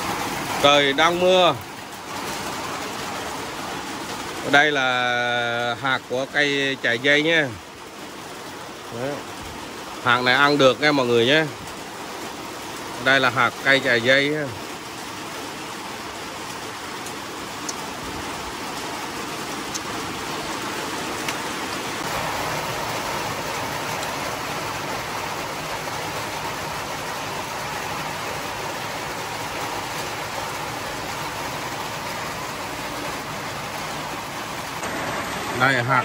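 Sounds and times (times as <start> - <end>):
steady rain patter: 0.0 - 36.0
sharp rain drop ticks: 16.3 - 25.0.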